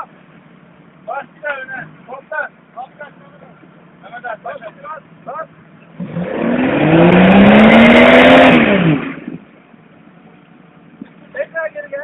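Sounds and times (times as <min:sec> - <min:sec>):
car engine revving hard: 0:05.9 - 0:09.5.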